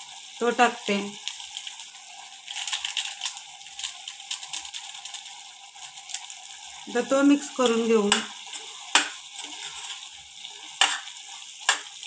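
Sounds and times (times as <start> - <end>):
food sizzling in a pan: 0.0 - 12.0
plastic sachet crinkling: 2.4 - 6.4.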